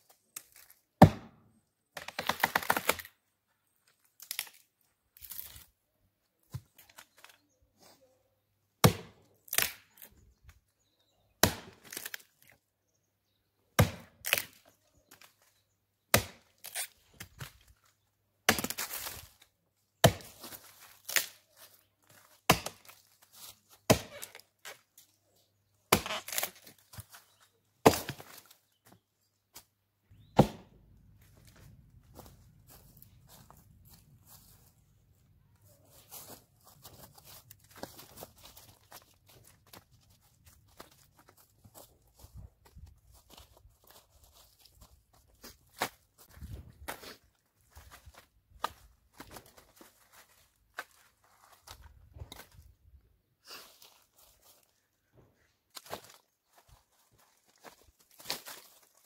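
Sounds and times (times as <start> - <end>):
axe chopping log: 1.0 - 1.4, 8.8 - 9.8, 11.4 - 12.1, 13.8 - 14.5, 16.1 - 16.5, 18.5 - 19.1, 20.0 - 20.4, 22.5 - 23.0, 23.9 - 24.4, 25.9 - 26.5, 27.8 - 28.4, 30.4 - 30.8.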